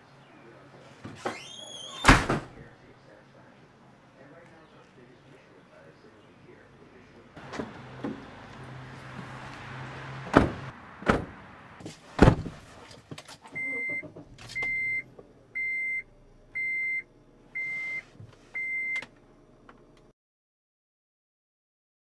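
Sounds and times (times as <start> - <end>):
thuds of person getting into seat: 10.3 - 12.6
dashboard warning chime beeping: 13.6 - 14.0, 14.6 - 19.0.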